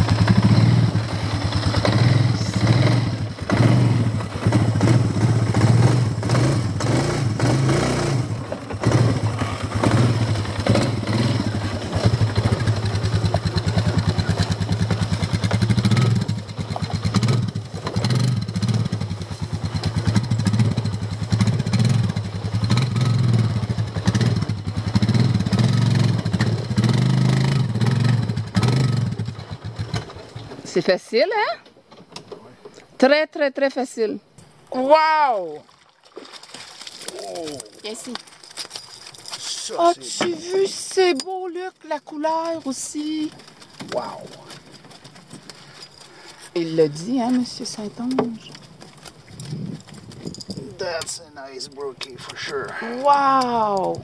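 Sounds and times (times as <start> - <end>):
atv engine running: 0.0 - 32.5, 36.8 - 54.0
knocks and rattles: 47.1 - 52.4.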